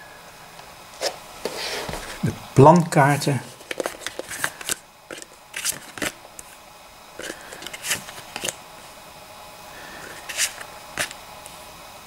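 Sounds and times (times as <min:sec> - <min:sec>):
cards scraping and tapping on board: 0:03.6 - 0:06.6, 0:07.2 - 0:08.6, 0:10.0 - 0:11.2.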